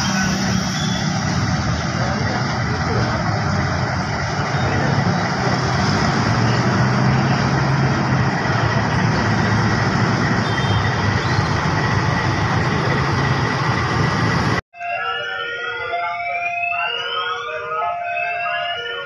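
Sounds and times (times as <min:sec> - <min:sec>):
locomotive engine rumbling: 0:00.0 - 0:14.6.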